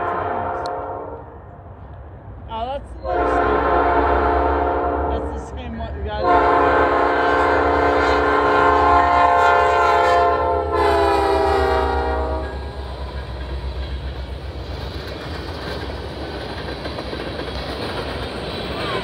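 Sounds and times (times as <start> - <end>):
locomotive horn blowing a chord: 0.0 - 1.3, 3.0 - 5.3, 6.2 - 12.7
locomotive rumble: 0.0 - 19.0
train wheels rolling over rails: 10.9 - 19.0.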